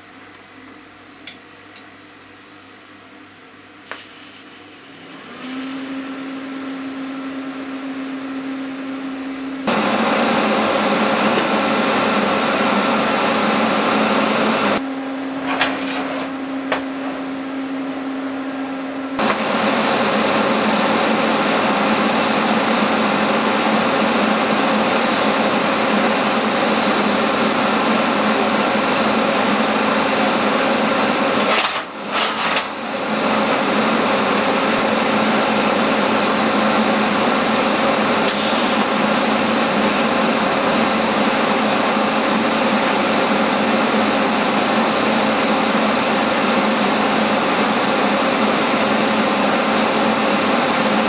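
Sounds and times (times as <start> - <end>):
steady hum: 0.0 - 51.0
welding arc buzzing hiss: 3.8 - 14.8, 15.4 - 41.3.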